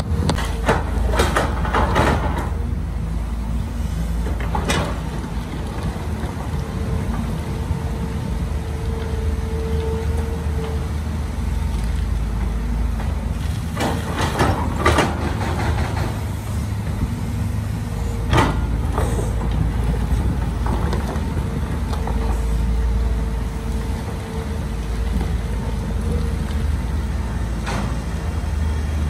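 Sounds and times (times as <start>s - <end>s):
diesel machinery engine running: 0.0s - 29.0s
clanks and rattles: 0.3s - 2.6s, 4.2s - 7.3s, 12.4s - 17.0s, 18.2s - 22.6s.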